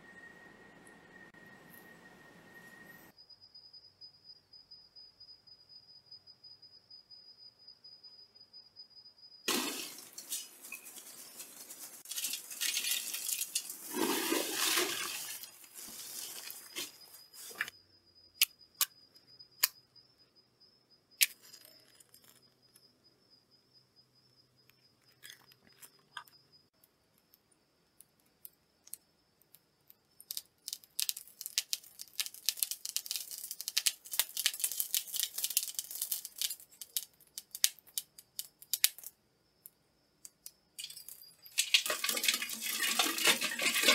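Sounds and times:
crumpled paper rustling: 0:09.5 - 0:17.6
fire crackling: 0:09.5 - 0:17.6, 0:30.3 - 0:39.1.

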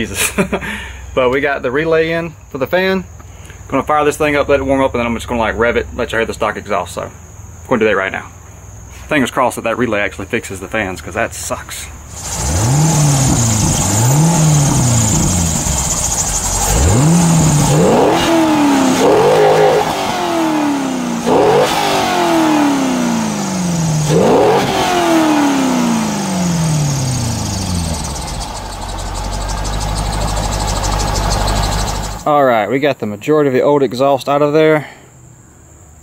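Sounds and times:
car engine idling: 0:11.8 - 0:32.3
car engine revving: 0:12.1 - 0:32.2.

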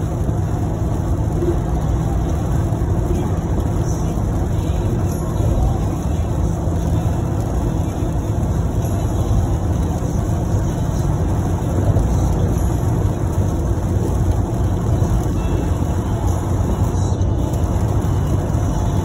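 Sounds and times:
car cabin road noise: 0:00.0 - 0:19.0.

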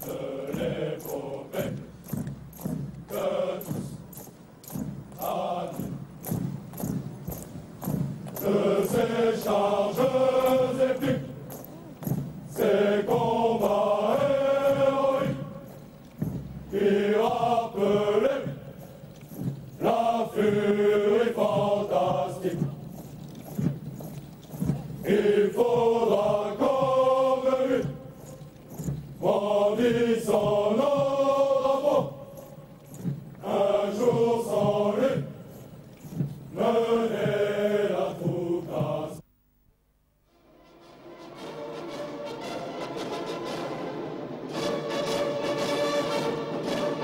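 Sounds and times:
soldiers singing in unison: 0:00.0 - 0:39.2, 0:40.9 - 0:47.0.

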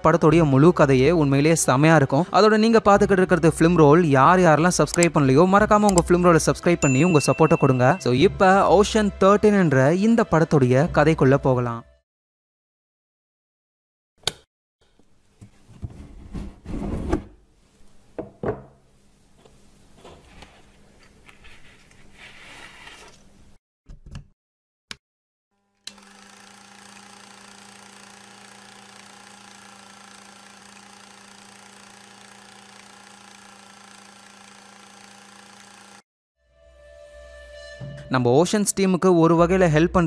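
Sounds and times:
film projector humming: 0:25.8 - 0:36.0.

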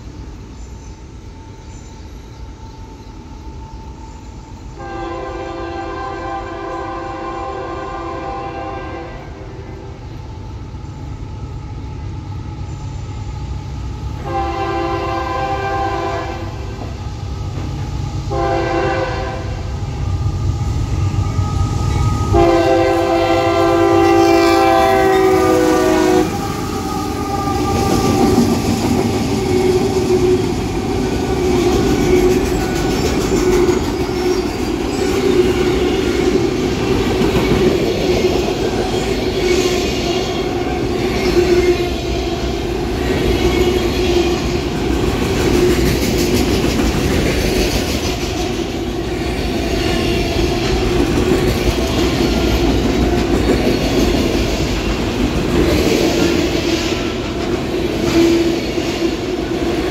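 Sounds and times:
train horn blasts: 0:04.8 - 0:09.8, 0:14.2 - 0:16.8, 0:18.3 - 0:19.7, 0:21.3 - 0:28.5, 0:58.0 - 0:59.3
diesel locomotive rumble: 0:04.8 - 0:59.9
train wheels clattering on rails: 0:13.8 - 0:59.9.

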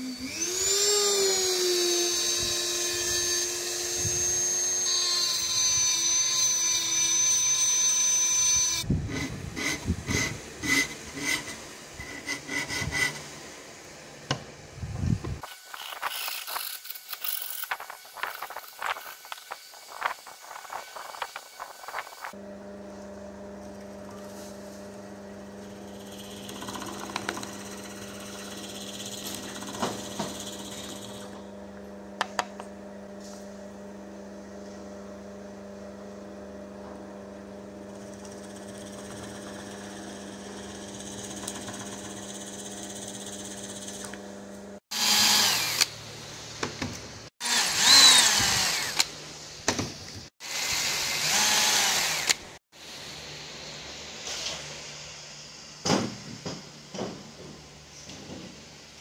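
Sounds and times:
hand-held power drill: 0:00.0 - 0:13.2, 0:15.4 - 0:22.4, 0:25.6 - 0:31.5, 0:37.9 - 0:46.0, 0:47.4 - 0:49.2, 0:50.4 - 0:52.6
drill press boring into wood: 0:25.6 - 0:31.5, 0:44.9 - 0:45.9, 0:47.4 - 0:49.1, 0:50.4 - 0:52.5.

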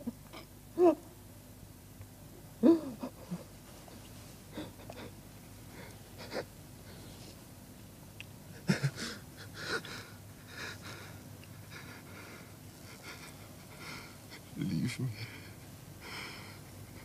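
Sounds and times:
man sobbing: 0:00.8 - 0:01.0, 0:02.6 - 0:03.5, 0:04.5 - 0:05.2, 0:05.8 - 0:06.6, 0:08.5 - 0:17.0.

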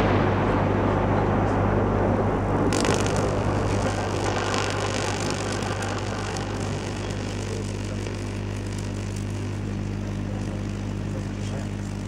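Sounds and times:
low steady humming: 0:00.0 - 0:12.0
plasma flame hissing: 0:02.7 - 0:12.0.

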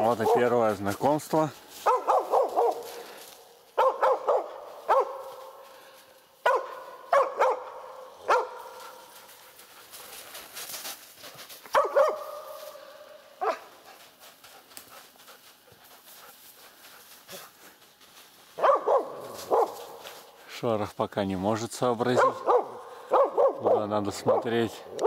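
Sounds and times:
dog barking: 0:00.2 - 0:00.6, 0:01.8 - 0:03.1, 0:03.8 - 0:05.6, 0:06.4 - 0:09.1, 0:11.7 - 0:13.7, 0:18.6 - 0:20.1, 0:22.1 - 0:25.0.

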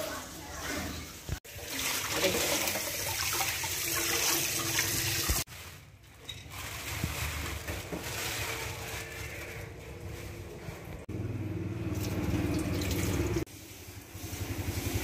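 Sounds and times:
hands being washed: 0:00.3 - 0:05.5
tap water running into steel sink: 0:01.5 - 0:05.4, 0:12.0 - 0:13.4.

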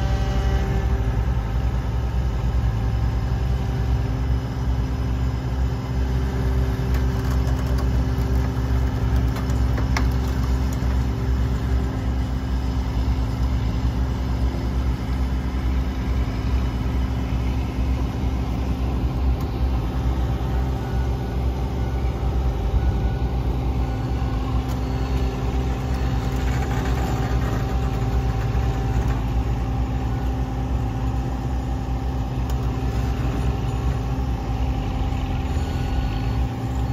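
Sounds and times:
diesel engine idling: 0:00.0 - 0:36.9.

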